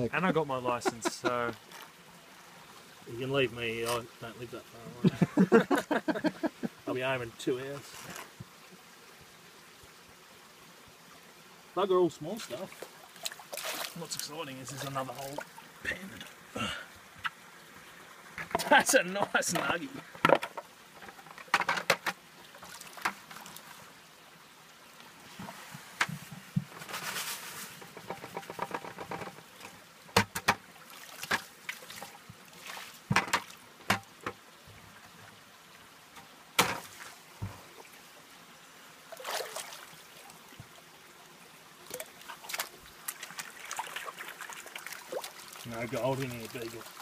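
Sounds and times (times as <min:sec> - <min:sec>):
water splashing and sloshing: 0:00.0 - 0:10.2, 0:10.8 - 0:47.0
plastic knocks: 0:19.5 - 0:22.2, 0:30.1 - 0:30.6, 0:33.1 - 0:34.4.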